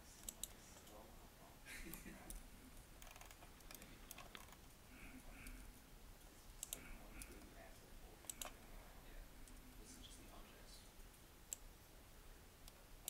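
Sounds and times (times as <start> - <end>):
mouse and keyboard clicks: 0.2 - 1.0, 3.0 - 4.7, 8.2 - 8.6.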